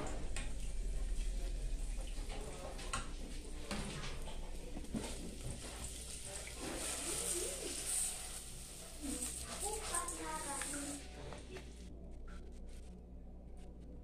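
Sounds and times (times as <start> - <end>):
garlic sizzling in hot oil: 5.2 - 11.0
dry rice poured into pot: 5.8 - 11.0.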